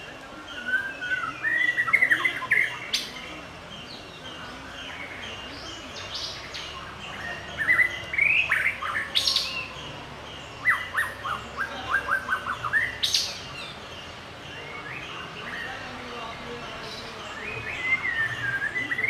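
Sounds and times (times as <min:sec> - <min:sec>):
bird singing whistled notes: 0:00.0 - 0:15.9, 0:16.8 - 0:19.0.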